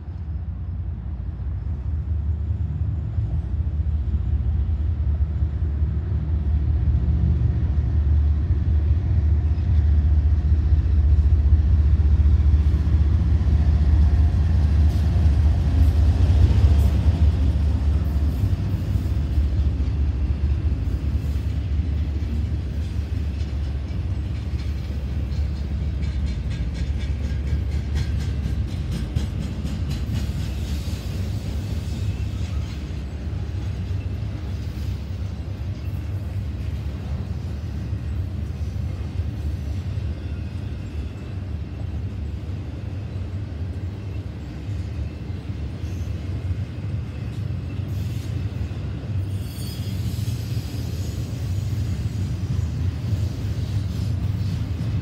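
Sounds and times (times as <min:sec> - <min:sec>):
diesel locomotive engine: 0:00.0 - 0:55.0
wheels clicking over rail joints: 0:14.0 - 0:37.3.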